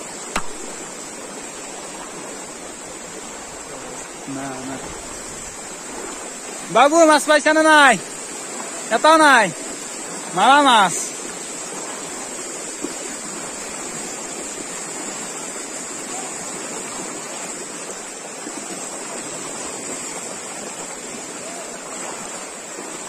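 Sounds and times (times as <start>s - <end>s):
floodwater rushing: 0.0s - 23.0s.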